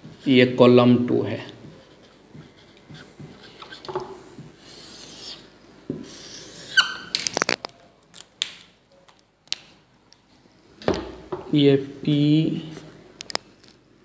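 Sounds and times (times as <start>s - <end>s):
marker rubbing on whiteboard: 1.6s - 7.1s
marker squeak: 2.0s - 4.0s, 4.6s - 5.5s, 6.1s - 7.5s.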